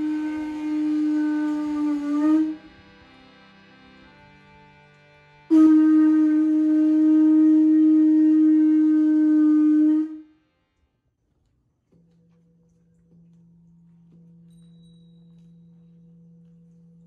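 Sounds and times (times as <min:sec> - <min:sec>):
conch shell trumpet note: 0:00.0 - 0:04.7, 0:05.3 - 0:10.4.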